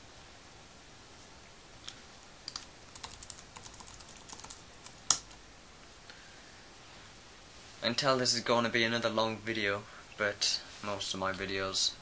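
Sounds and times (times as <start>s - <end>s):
computer keyboard typing: 2.4s - 5.4s.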